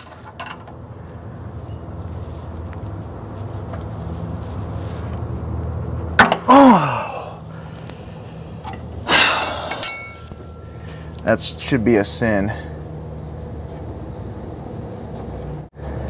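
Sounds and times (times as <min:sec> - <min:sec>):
metal wrench clinking on concrete: 0:00.0 - 0:00.7, 0:09.4 - 0:10.8
low steady hum: 0:00.0 - 0:16.0
scrape: 0:03.4 - 0:05.2
man groaning: 0:06.4 - 0:07.5, 0:09.1 - 0:09.8.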